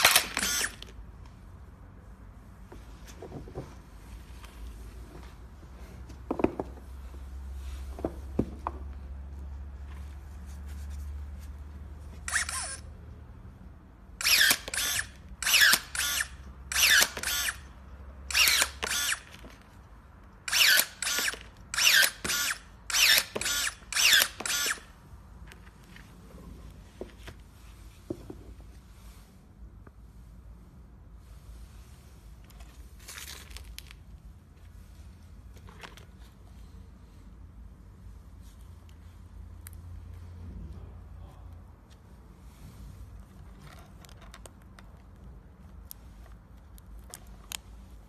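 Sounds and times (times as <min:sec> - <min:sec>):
electric shear motor whirs: 0:14.2 - 0:17.6, 0:18.3 - 0:19.4.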